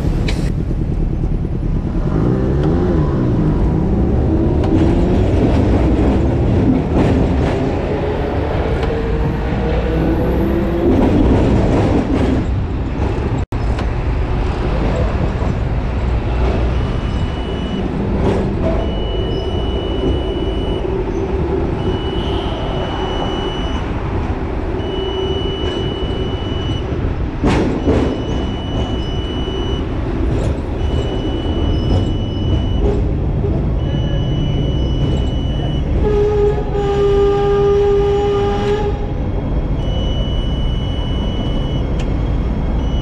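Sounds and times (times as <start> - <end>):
tram wheels and motor rumbling: 0.0 - 43.0
high electronic beep: 16.7 - 24.0, 24.8 - 27.0, 27.8 - 30.0, 30.7 - 33.0, 33.8 - 36.0, 39.4 - 43.0.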